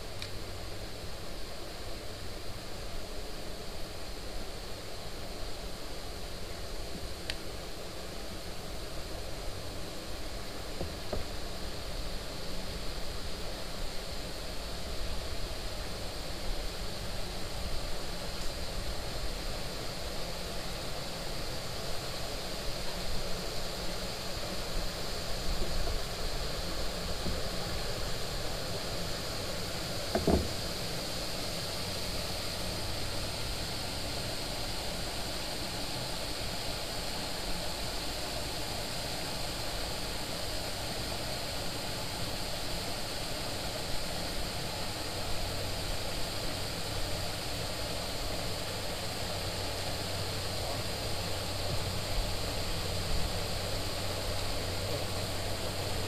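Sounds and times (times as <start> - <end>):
outdoor hiss: 0.0 - 56.0
short knock: 30.1 - 30.6.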